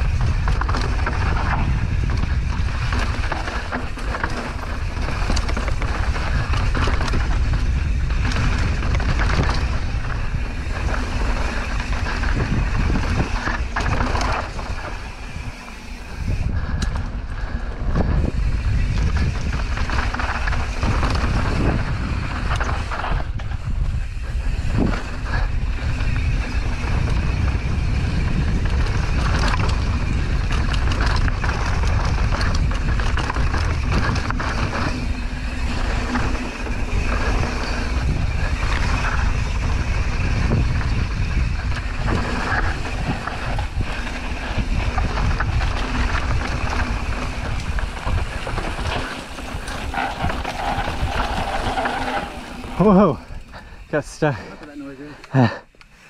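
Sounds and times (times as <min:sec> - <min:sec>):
bike rattling and knocking: 0:00.0 - 0:55.6
wind rumbling on microphone: 0:00.0 - 0:55.6
tyres crunching over gravel: 0:41.6 - 0:55.5.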